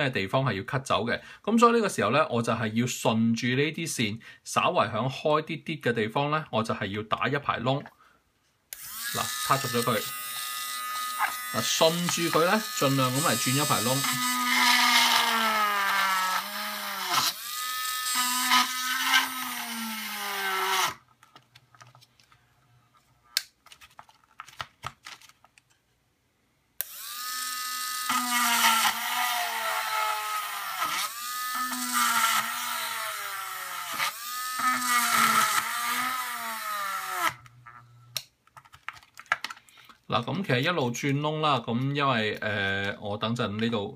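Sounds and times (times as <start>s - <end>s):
electric drill whining into plastic: 8.7s - 21.1s, 26.8s - 38.2s.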